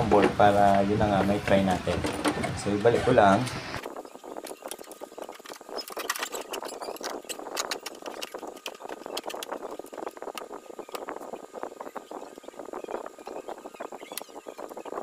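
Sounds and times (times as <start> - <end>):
circuit board clicks and rattles: 4.4 - 11.1.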